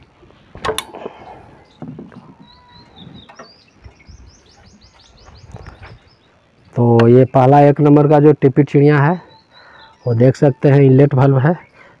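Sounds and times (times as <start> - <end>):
birds chirping: 0.8 - 12.0.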